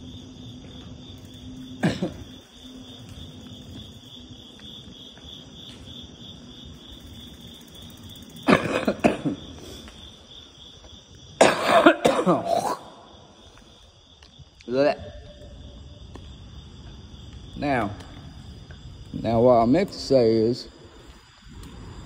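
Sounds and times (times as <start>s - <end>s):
man coughing and hacking: 1.8s - 2.4s, 8.4s - 9.5s, 11.4s - 13.1s.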